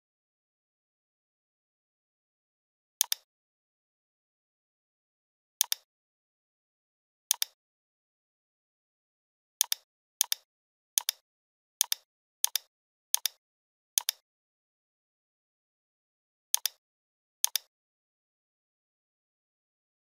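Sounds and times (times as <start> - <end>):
computer mouse button clicking: 3.0 - 3.3, 5.6 - 5.9, 7.3 - 7.6, 14.0 - 14.2, 17.4 - 17.7.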